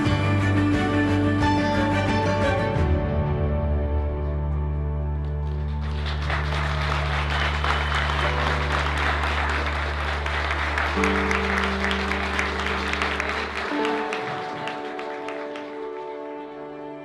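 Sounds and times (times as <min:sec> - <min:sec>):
music holding a sustained chord: 0:00.0 - 0:17.0
people applauding: 0:05.2 - 0:16.7.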